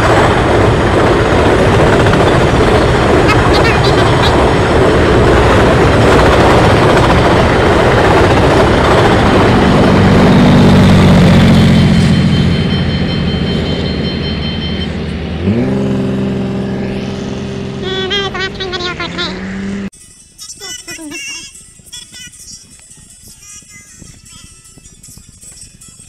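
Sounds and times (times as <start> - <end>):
freight train wheels rumbling: 0.0 - 16.2
diesel locomotive engine hum: 0.0 - 26.0
steady pitched tone sliding up: 1.6 - 19.9.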